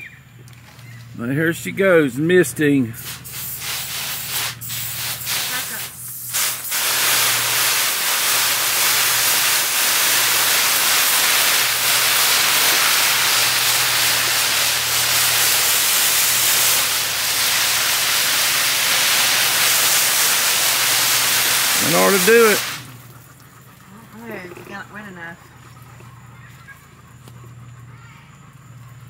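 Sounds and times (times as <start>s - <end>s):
hose nozzle spraying water: 2.0s - 24.8s.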